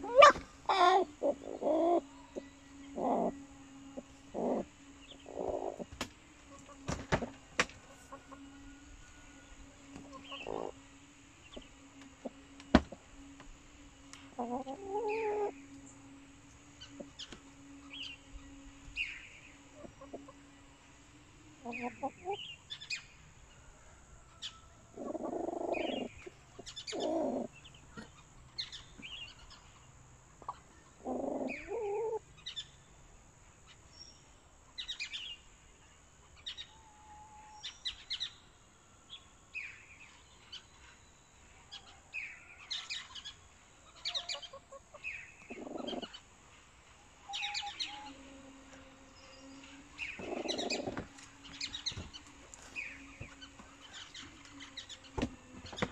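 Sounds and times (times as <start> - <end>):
hens clucking: 0.0 - 13.4, 14.2 - 22.7, 24.9 - 29.8, 30.4 - 32.2, 43.0 - 46.4, 49.5 - 55.9.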